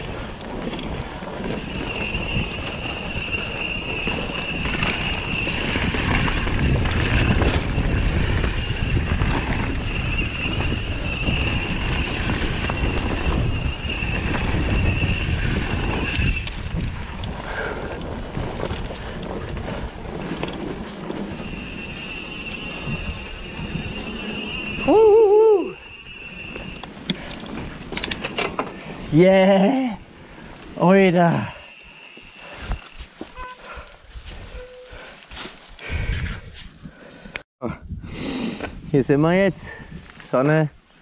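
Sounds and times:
wind buffeting microphone: 0.0 - 28.2, 31.8 - 37.0, 37.6 - 40.2
bike tyres rolling over dirt: 0.0 - 36.8
steady high whine: 1.5 - 6.0, 21.3 - 27.0.

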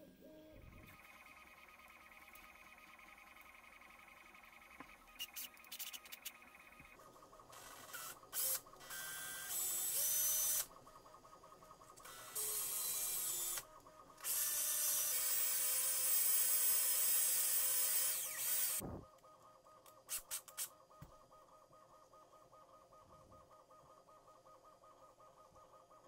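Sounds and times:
small power tool running: 7.5 - 10.7, 12.0 - 18.9.

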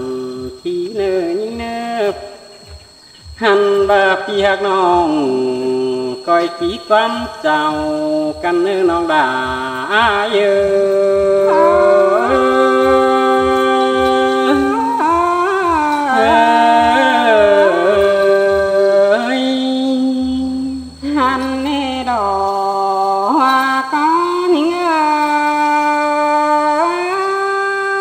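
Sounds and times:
soft low beat: 0.4 - 22.6
drawn-out sliding melody: 11.4 - 18.5.

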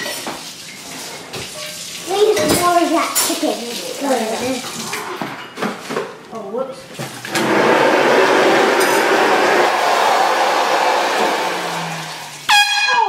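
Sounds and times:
air horn blast: 11.2 - 13.0.

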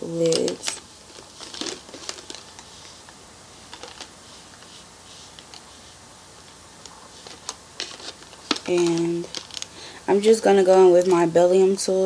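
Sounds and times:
faint steady hiss: 0.0 - 12.0
makeup items clicking and tapping: 6.8 - 9.7.

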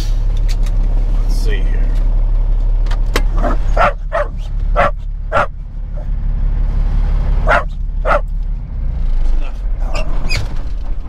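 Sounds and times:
diesel engine idling: 0.0 - 11.0
dog barking: 3.4 - 6.1, 7.4 - 8.3.

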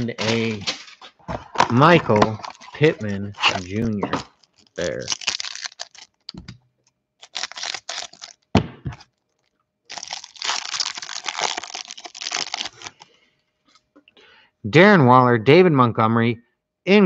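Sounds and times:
cellophane crinkling: 0.0 - 13.9
scissors cutting cellophane: 2.1 - 6.5, 7.2 - 8.4, 9.9 - 13.0.

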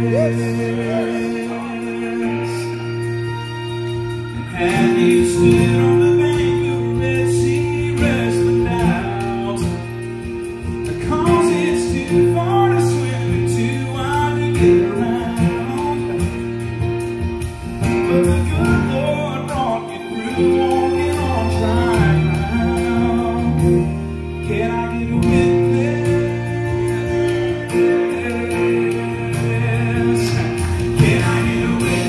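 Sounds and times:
acoustic guitars playing: 0.0 - 32.0.

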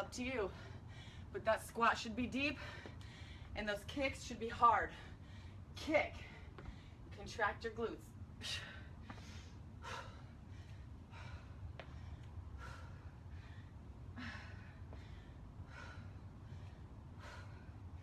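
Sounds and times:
woman breathing hard: 0.4 - 1.4, 2.5 - 3.6, 4.9 - 7.1, 8.4 - 18.0.

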